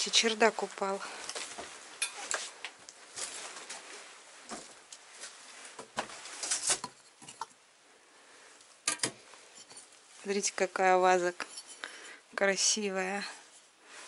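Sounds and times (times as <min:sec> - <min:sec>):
footsteps crunching over debris: 0:00.3 - 0:06.7.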